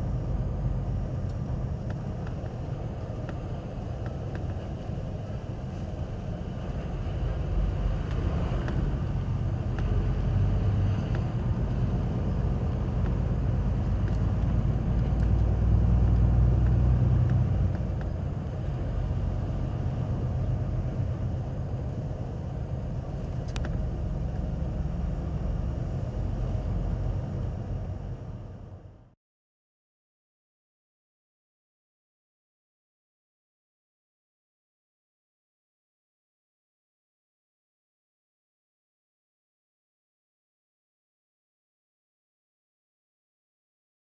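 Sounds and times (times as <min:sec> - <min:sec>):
vehicle engine and tyre rumble: 0:00.0 - 0:29.2.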